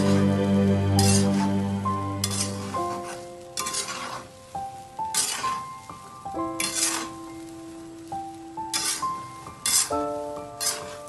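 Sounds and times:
spatula scraping peanuts in a pan: 0.0 - 1.6, 2.2 - 4.4, 5.0 - 5.8, 6.6 - 7.3, 8.7 - 11.0
background music: 0.0 - 11.0.

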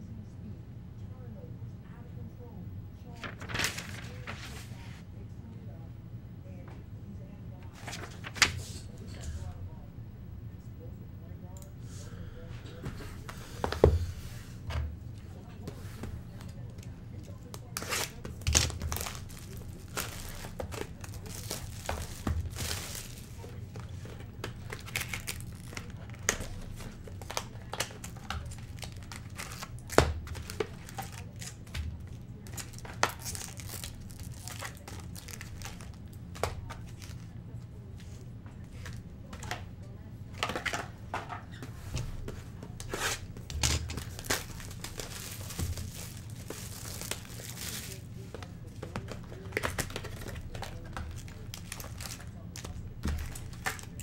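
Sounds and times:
steady low hum: 0.0 - 54.0
plastic wrap crinkling: 3.2 - 4.7, 17.2 - 37.3, 42.8 - 54.0.

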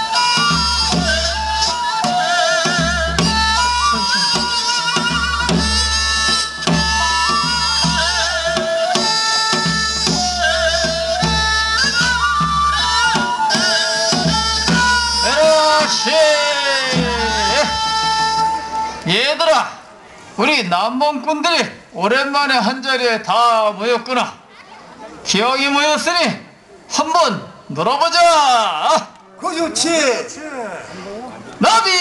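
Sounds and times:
wavering folk melody: 0.0 - 19.1.

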